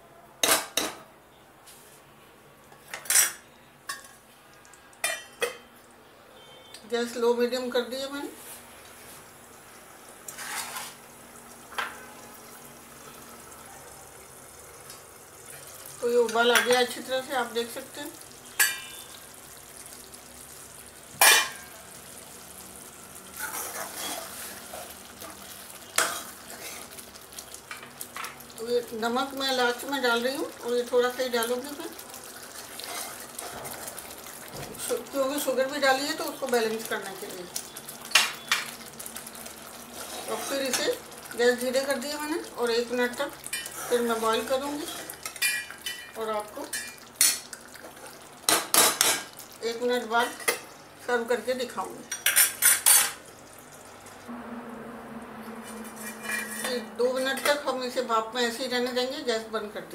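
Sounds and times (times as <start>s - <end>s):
gravy boiling: 7.0s - 54.3s
metal spoon scraping a pan: 10.3s - 11.0s, 23.3s - 27.0s, 32.7s - 33.9s, 39.9s - 41.0s, 55.6s - 57.8s
utensils and lid clinking: 55.7s - 57.7s.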